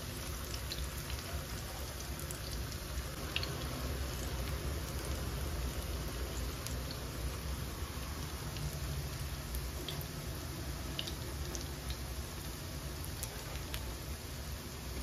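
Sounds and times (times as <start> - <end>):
fritters sizzling in hot oil: 0.0 - 15.0.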